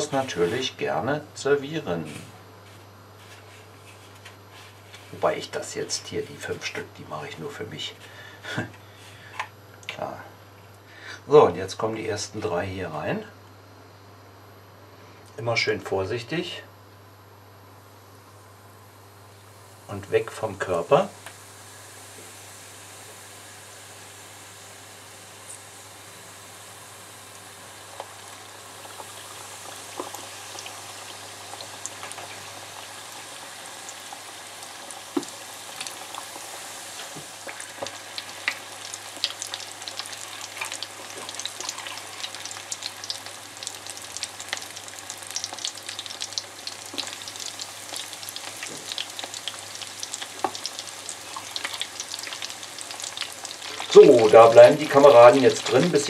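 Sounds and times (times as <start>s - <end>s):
chicken frying in hot oil: 0.0s - 0.7s, 19.0s - 56.0s.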